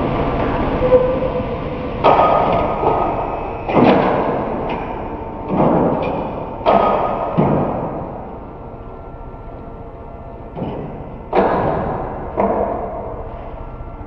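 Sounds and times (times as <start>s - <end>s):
clamp beams thudding: 2.0s - 8.4s, 10.5s - 13.1s.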